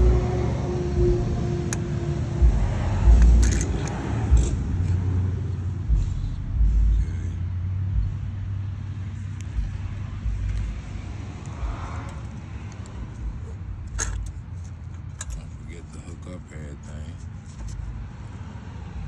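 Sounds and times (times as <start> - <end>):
uneven low rumble: 0.0 - 12.4
steady low hum: 0.0 - 18.4.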